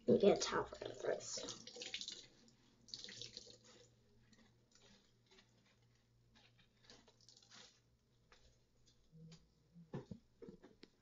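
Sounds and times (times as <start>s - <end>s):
water dripping into sink: 0.2s - 3.8s.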